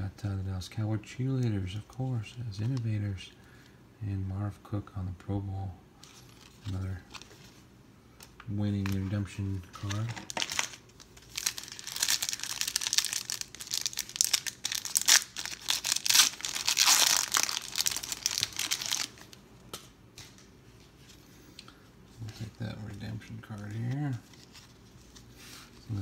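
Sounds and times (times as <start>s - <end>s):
foil wrapper tearing and crinkling: 9.8s - 19.4s.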